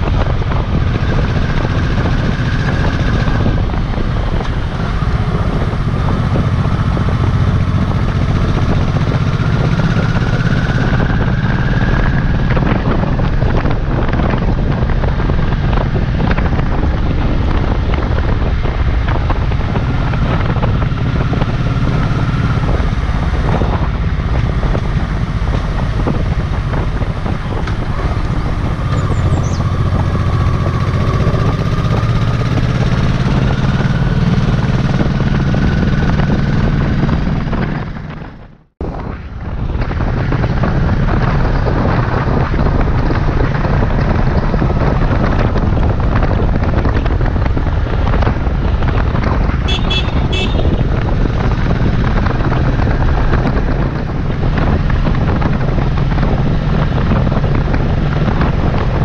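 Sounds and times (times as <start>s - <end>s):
motorcycle engine running: 0.0s - 59.0s
wind buffeting microphone: 0.0s - 59.0s.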